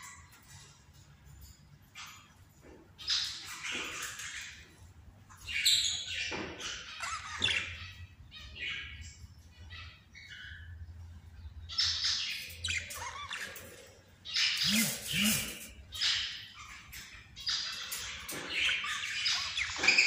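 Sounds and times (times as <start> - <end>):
budgerigars chirping and warbling: 0.0 - 20.0
bird squawks: 11.7 - 20.0.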